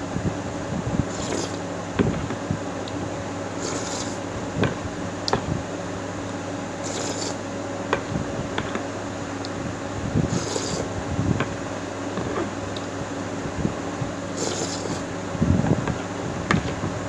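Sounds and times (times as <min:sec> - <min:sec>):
steady background hum: 0:00.0 - 0:17.0
slurping: 0:01.1 - 0:01.6, 0:03.6 - 0:04.2, 0:06.8 - 0:07.4, 0:10.3 - 0:10.9, 0:14.4 - 0:15.0.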